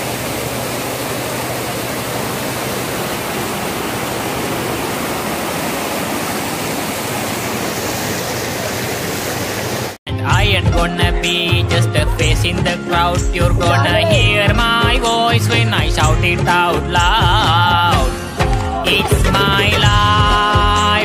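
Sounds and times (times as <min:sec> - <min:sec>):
floodwater rushing: 0:00.0 - 0:10.0.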